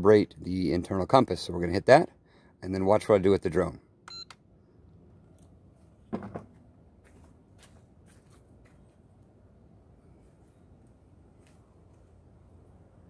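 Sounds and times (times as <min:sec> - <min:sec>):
transmitter set down thump: 0:06.1 - 0:06.5
flip-flop footsteps on concrete: 0:06.4 - 0:09.0.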